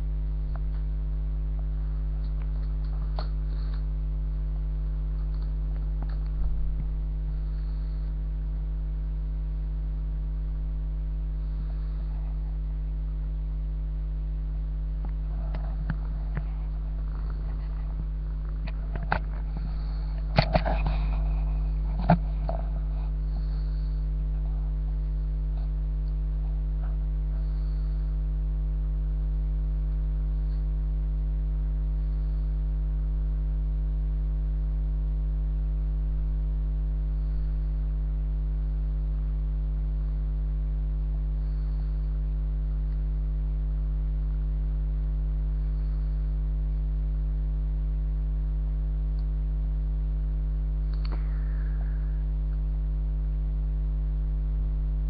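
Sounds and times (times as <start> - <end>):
electrical mains hum: 0.0 - 55.0
faint click: 50.9 - 51.6.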